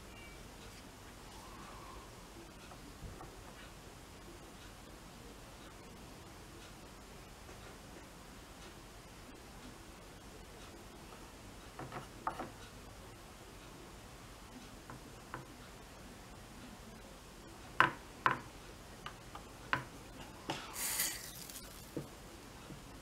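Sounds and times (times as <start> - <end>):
scratchy hiss of tip cleaning: 20.7 - 21.9.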